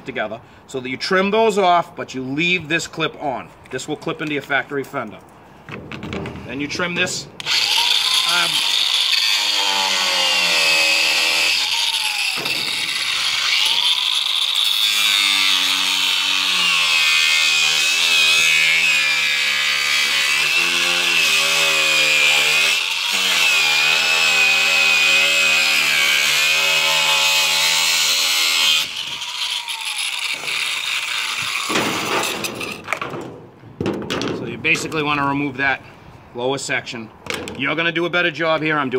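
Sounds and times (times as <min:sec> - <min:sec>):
angle grinder cutting plastic: 0:07.4 - 0:33.0.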